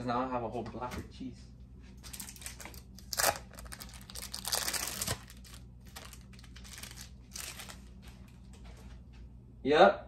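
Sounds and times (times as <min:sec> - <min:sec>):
plastic wrapper crinkling: 0:02.0 - 0:08.3.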